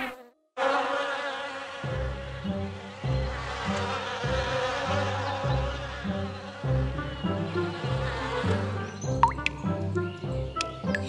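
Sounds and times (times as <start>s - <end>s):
bees buzzing: 0.0s - 11.0s
light music with bouncing bass: 9.0s - 11.0s.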